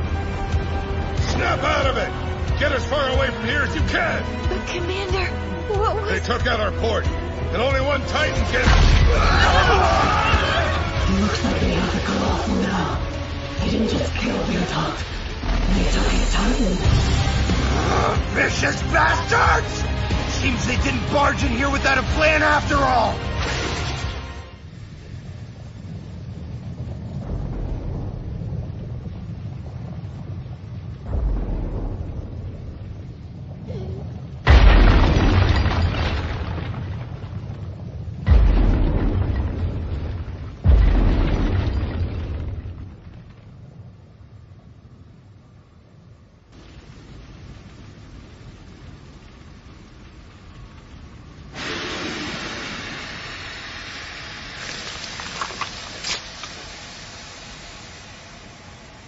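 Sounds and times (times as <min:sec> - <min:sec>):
low rumble: 0:00.0 - 0:59.0
heavy boom: 0:08.4 - 0:11.9, 0:31.0 - 0:33.6, 0:34.4 - 0:43.6
steam hissing: 0:46.6 - 0:59.0
sharp cracks: 0:54.6 - 0:57.2.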